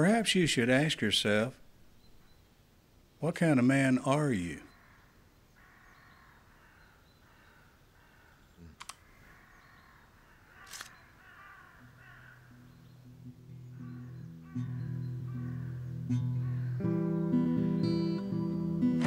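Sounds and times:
crows cawing: 0:04.7 - 0:17.3.

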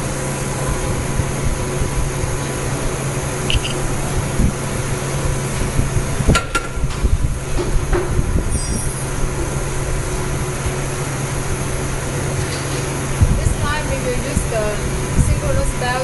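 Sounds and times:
low machine hum: 0:00.0 - 0:16.0
sharp metallic clicks: 0:03.5 - 0:03.8.

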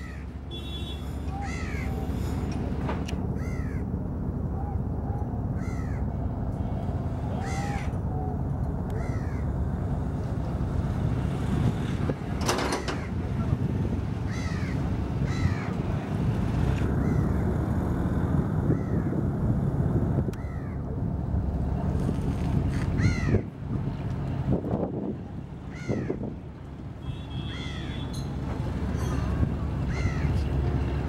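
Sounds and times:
boat traffic rumble: 0:00.0 - 0:31.0
crows cawing: 0:03.4 - 0:03.8, 0:05.6 - 0:06.0, 0:09.0 - 0:09.4, 0:14.3 - 0:15.8, 0:23.0 - 0:23.4, 0:25.7 - 0:26.2, 0:27.5 - 0:28.0, 0:29.9 - 0:30.4.

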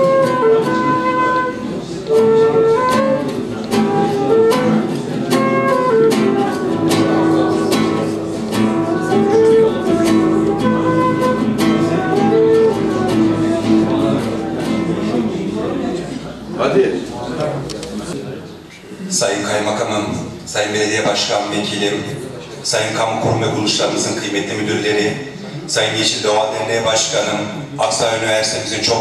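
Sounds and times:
flute melody: 0:00.0 - 0:15.9
plucked acoustic guitar: 0:00.0 - 0:16.4.

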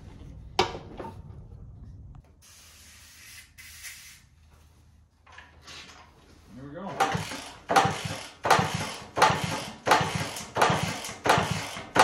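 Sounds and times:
low rumble: 0:00.0 - 0:02.3
aerosol spray can hissing: 0:02.4 - 0:04.3.

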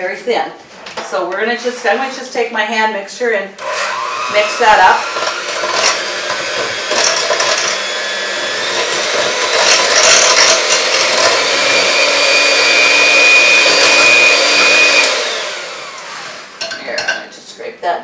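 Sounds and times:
electric hand mixer whipping batter: 0:03.6 - 0:16.8.

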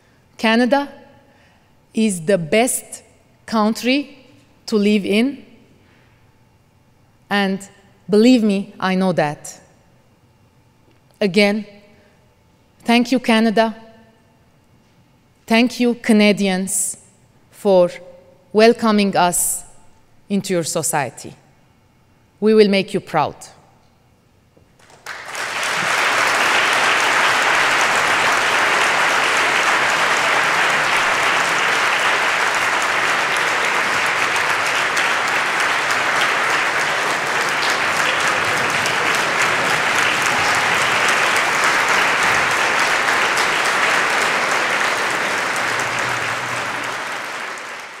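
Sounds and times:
large audience applauding: 0:24.8 - 0:48.0.

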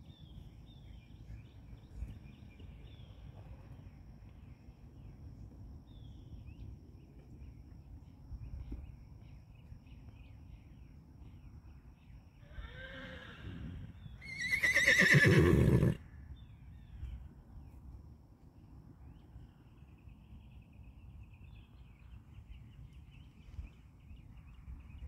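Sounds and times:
faint birdsong trill: 0:00.0 - 0:25.0
horse neighing: 0:12.4 - 0:16.0.

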